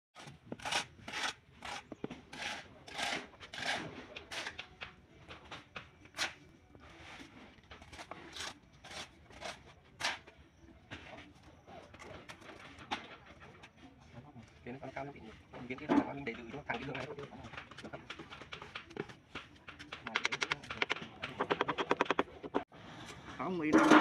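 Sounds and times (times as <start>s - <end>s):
tiles scraping on wet mortar: 0.2s - 4.8s, 6.1s - 10.3s.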